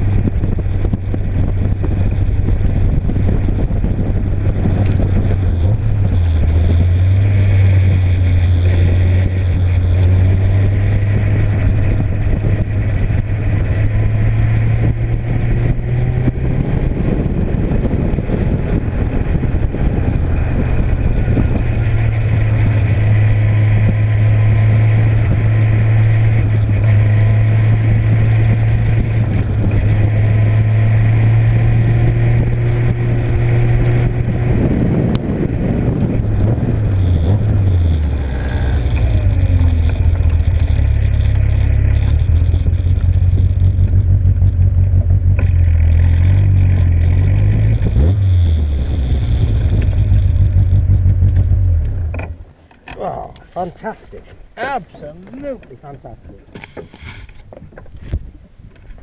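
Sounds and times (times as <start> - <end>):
sports car engine: 0.0 - 55.3
wind noise: 0.0 - 59.0.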